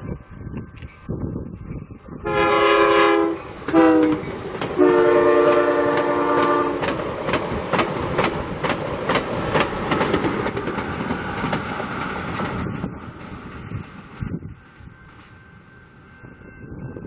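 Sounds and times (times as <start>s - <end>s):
train horn blasts: 2.2s - 6.9s
train wheels clicking over rail joints: 3.6s - 4.8s, 5.4s - 15.4s.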